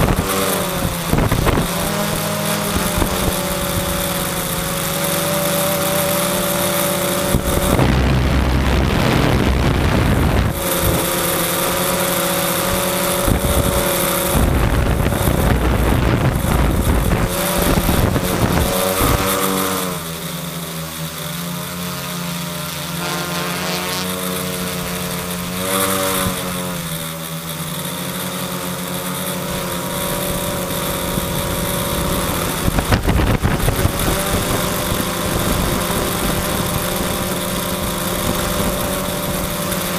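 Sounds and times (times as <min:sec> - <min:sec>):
wind rumbling on microphone: 0:00.0 - 0:04.3, 0:06.9 - 0:19.3, 0:30.8 - 0:39.9
drone motors whirring: 0:01.1 - 0:20.2.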